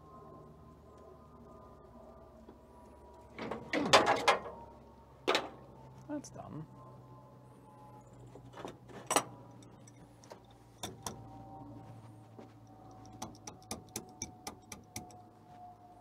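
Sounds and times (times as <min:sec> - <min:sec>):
even metallic ticks: 0:09.1 - 0:11.3, 0:12.6 - 0:15.2
hand tools clicking on metal: 0:09.1 - 0:11.3, 0:12.9 - 0:15.2.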